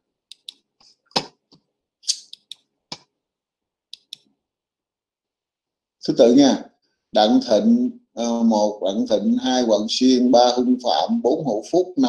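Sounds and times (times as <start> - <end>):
computer mouse clicks: 0.3 - 0.6, 1.5 - 3.1, 3.9 - 4.3.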